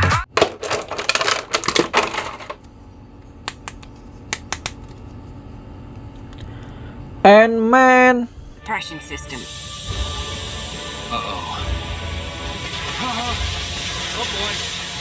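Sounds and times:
plastic figures clicking together: 3.5s - 4.9s.

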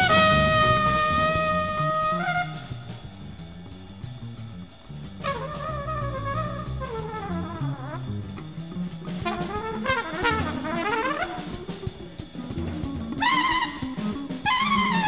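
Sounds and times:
trumpet sliding in pitch: 0.0s - 3.0s, 5.2s - 8.3s, 9.2s - 11.9s, 13.2s - 15.0s
bass: 0.0s - 15.0s
drum kit: 0.0s - 15.0s.

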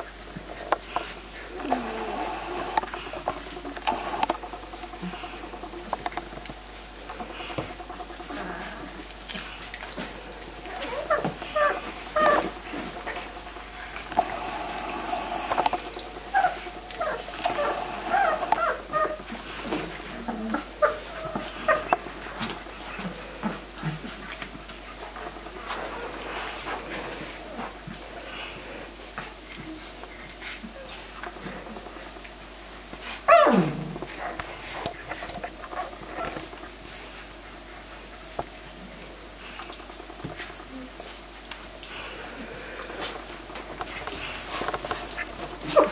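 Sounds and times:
puppies whimpering and squeaking: 7.1s - 28.6s, 43.9s - 45.9s
puppy yelping: 10.7s - 13.2s, 16.3s - 19.4s, 20.2s - 23.6s, 33.3s - 34.4s.

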